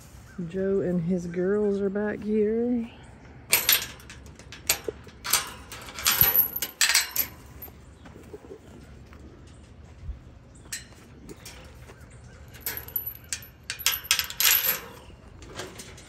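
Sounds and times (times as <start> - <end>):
metal chain rattling on fence post: 3.4 - 8.0, 9.3 - 16.0.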